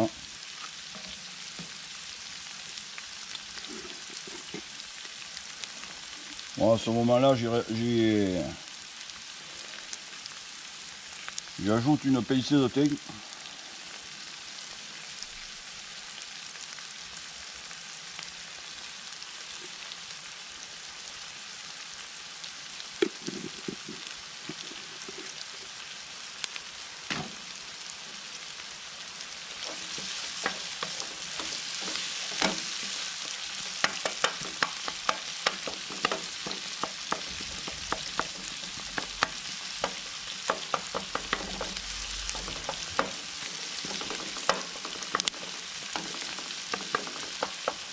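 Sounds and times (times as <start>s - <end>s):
onions sizzling in oil: 0.0s - 47.9s
wooden spoon scraping a pan: 0.6s - 1.8s, 3.5s - 4.9s, 23.0s - 25.8s, 29.5s - 47.9s.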